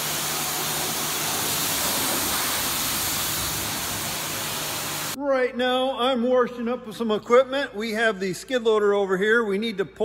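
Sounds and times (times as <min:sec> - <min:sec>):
pressure washer spraying water: 0:00.0 - 0:05.2.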